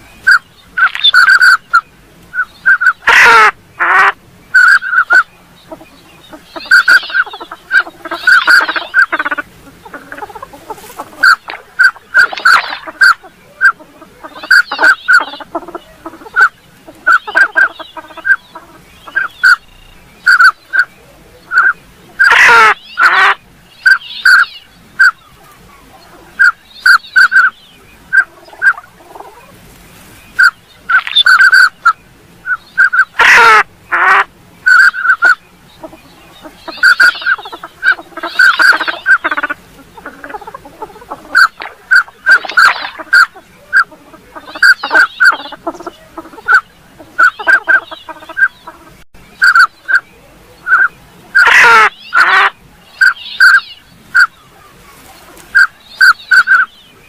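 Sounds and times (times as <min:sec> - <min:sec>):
ducks whistling calls: 0:00.0 - 0:57.0
harsh falling duck calls: 0:02.4 - 0:19.6, 0:21.5 - 0:25.2, 0:30.4 - 0:50.0, 0:50.7 - 0:54.3.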